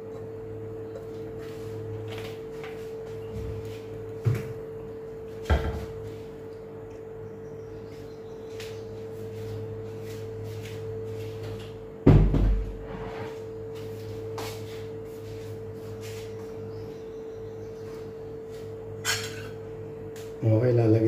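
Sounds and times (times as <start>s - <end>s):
steady hum: 0.0s - 21.0s
heavy thump: 12.0s - 12.8s.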